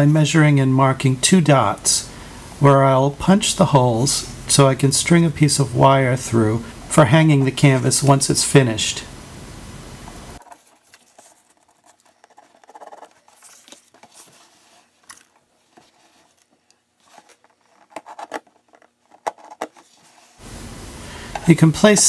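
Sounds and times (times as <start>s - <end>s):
cardboard box clicks and scratching: 10.4s - 20.4s.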